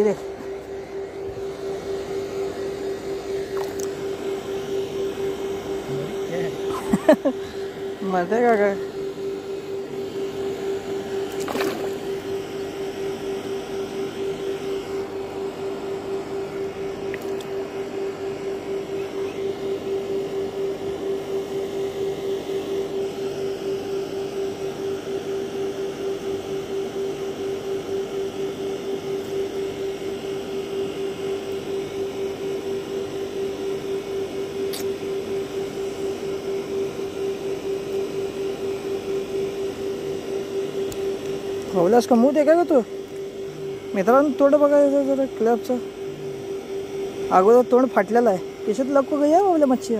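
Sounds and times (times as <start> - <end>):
small engine running: 0.0 - 25.8, 41.6 - 49.9.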